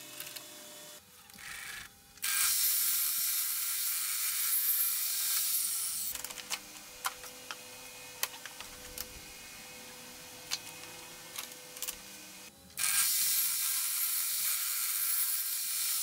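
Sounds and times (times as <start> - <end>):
table saw cutting wood: 0.0 - 8.2, 9.2 - 16.0.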